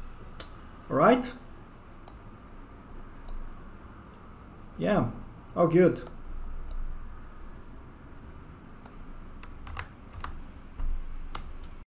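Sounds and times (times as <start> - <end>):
faint low hum: 0.0 - 11.8
keyboard and mouse clicks: 8.8 - 11.8.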